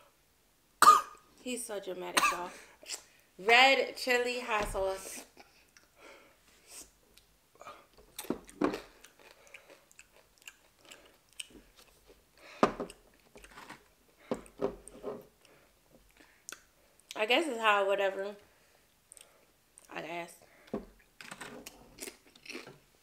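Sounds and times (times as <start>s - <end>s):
people crunching chips: 21.2s - 22.8s.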